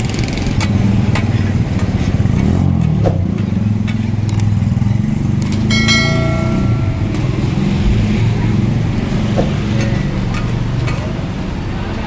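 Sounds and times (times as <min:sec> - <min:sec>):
engine running: 0:00.0 - 0:11.2
pitched tone: 0:05.7 - 0:08.3.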